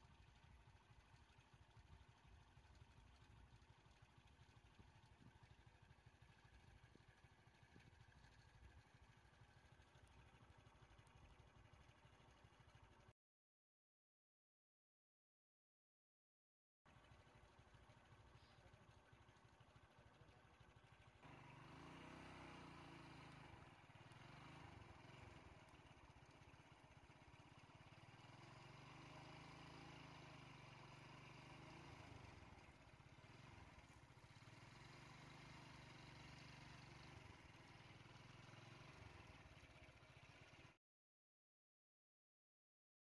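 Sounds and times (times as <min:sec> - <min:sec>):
faint vehicle engine idling: 0:00.0 - 0:13.1, 0:16.9 - 0:40.8.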